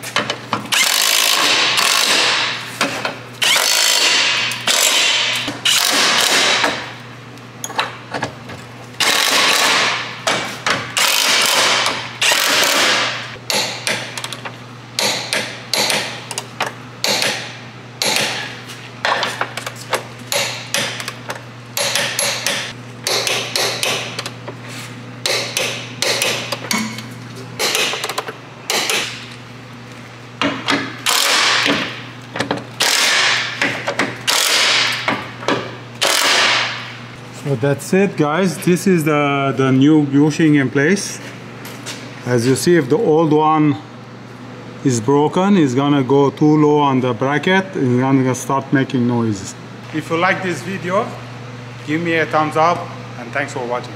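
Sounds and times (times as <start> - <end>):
impact wrench hammering: 0.2 - 6.9, 9.0 - 14.4, 15.0 - 19.4, 20.3 - 24.3, 25.2 - 27.0, 27.6 - 29.3, 30.4 - 37.0.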